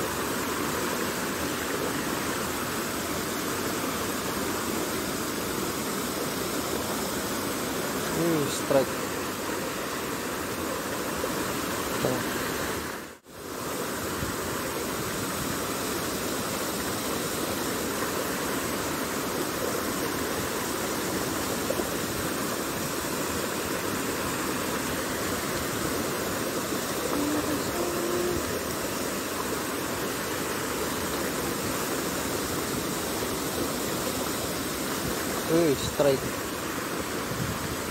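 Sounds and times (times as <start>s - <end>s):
stream rushing over rocks: 0.0s - 37.9s.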